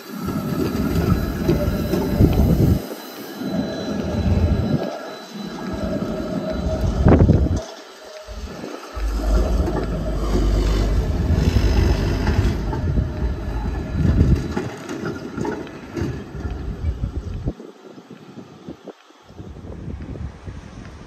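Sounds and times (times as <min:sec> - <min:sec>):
wheels clattering over rail joints: 0:00.0 - 0:02.9, 0:05.6 - 0:17.3
faint high wheel squeal: 0:00.0 - 0:17.1
tram rumbling past: 0:00.0 - 0:17.5.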